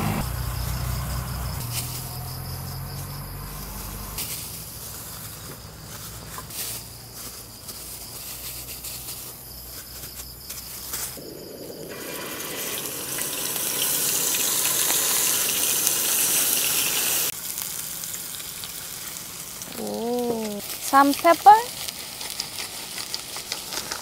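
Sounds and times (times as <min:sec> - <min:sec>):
meat patties sizzling in oil: 0:10.9 - 0:24.0.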